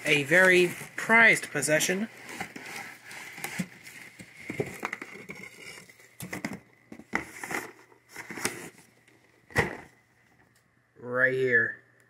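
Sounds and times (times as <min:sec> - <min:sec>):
cardboard boxes rustling and knocking: 0:02.0 - 0:08.9, 0:09.5 - 0:10.0.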